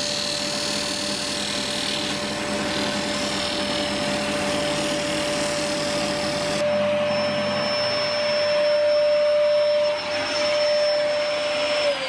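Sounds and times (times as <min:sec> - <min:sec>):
wood lathe motor whine: 0:00.0 - 0:12.0.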